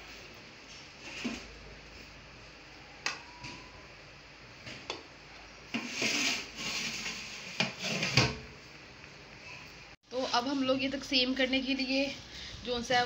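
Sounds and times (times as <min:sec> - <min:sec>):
rice scraping against metal: 0:05.7 - 0:08.3.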